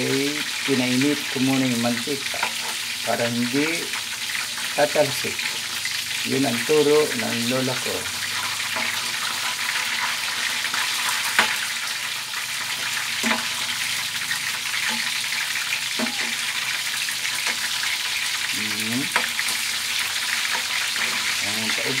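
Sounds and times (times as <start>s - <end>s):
chicken frying in hot oil: 0.0s - 22.0s
spatula scraping a pan: 1.3s - 3.0s, 8.2s - 22.0s.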